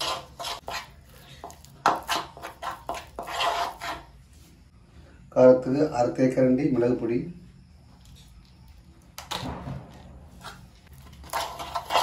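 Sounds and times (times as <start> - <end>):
metal spoon stirring thick paste: 0.0 - 4.2, 10.3 - 12.0.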